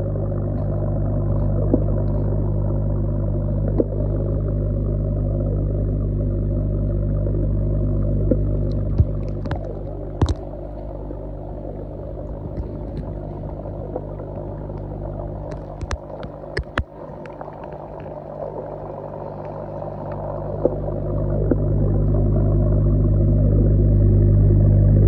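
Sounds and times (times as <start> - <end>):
bubbling from air pipe: 0.0 - 25.0
low hum of aeration equipment: 0.0 - 25.0
sharp clicks: 14.7 - 18.2.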